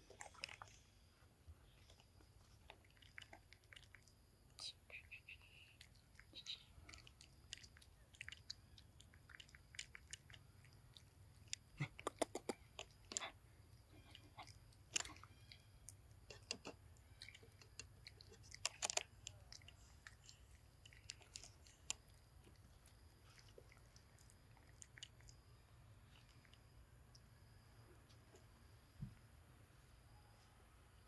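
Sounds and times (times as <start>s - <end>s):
monkey chewing food: 0.0s - 4.4s, 5.8s - 28.7s.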